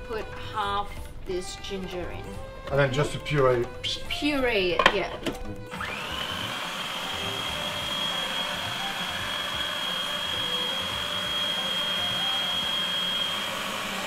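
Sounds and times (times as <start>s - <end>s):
food processor motor whining: 5.6s - 14.0s.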